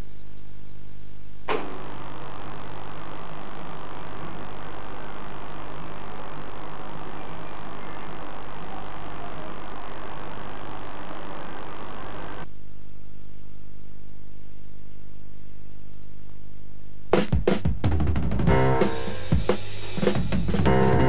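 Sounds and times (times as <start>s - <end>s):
electrical mains hum: 0.0s - 21.0s
tape hiss: 0.0s - 21.0s
sharp click: 1.4s - 1.8s.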